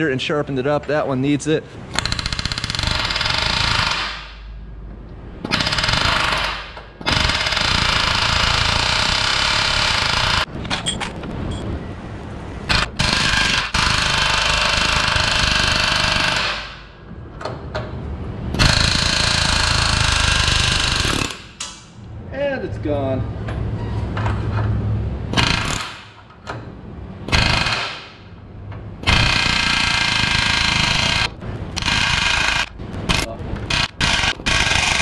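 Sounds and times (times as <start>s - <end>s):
air hammer hammering rivets: 1.9s - 4.4s, 27.3s - 28.3s.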